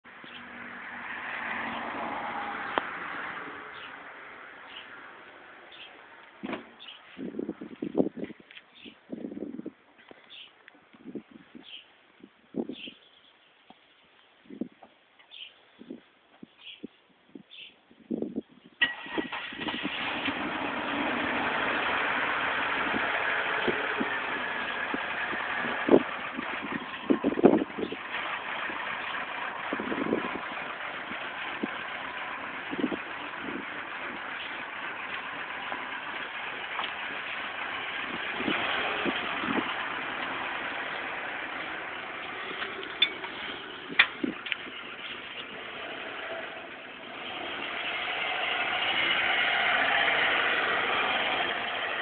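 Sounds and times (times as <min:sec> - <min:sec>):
car engine idling: 0:18.9 - 0:52.0.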